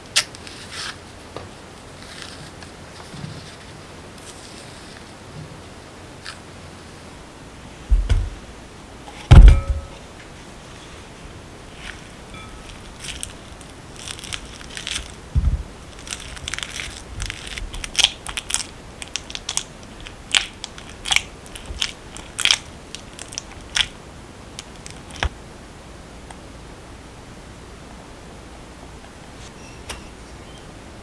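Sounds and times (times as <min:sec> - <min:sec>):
dull thump: 0:07.9 - 0:08.4, 0:09.2 - 0:10.0, 0:15.3 - 0:15.7
masher squishing bananas: 0:11.8 - 0:24.0.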